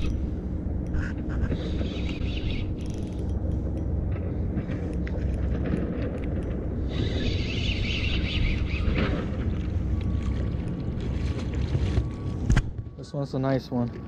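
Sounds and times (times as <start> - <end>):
low handling rumble: 0.0 - 13.1
fishing reel whirring: 0.9 - 3.9, 6.2 - 8.9
light reel clicks: 1.8 - 4.0.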